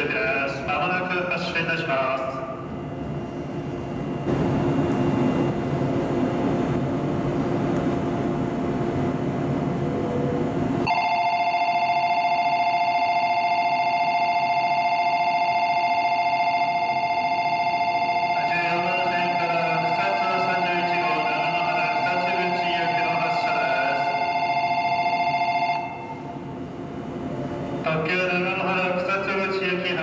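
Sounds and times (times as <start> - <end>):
station noise: 0.0 - 30.0
platform departure bell ringing: 9.9 - 26.5.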